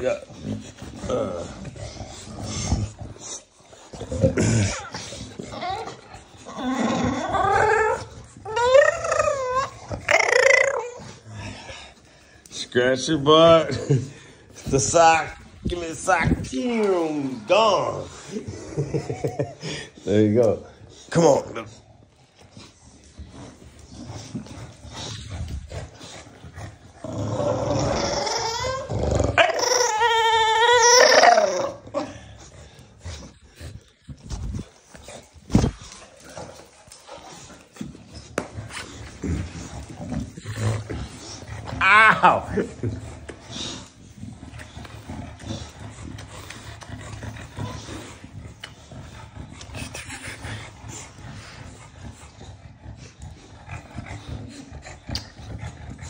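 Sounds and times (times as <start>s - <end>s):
dog growling: 0.0s - 56.0s
dog whining: 2.4s - 11.7s, 27.0s - 32.4s.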